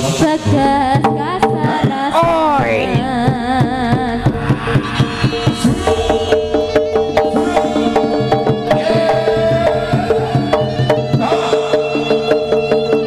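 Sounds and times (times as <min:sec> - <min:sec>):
hand drum strokes: 0:00.0 - 0:13.0.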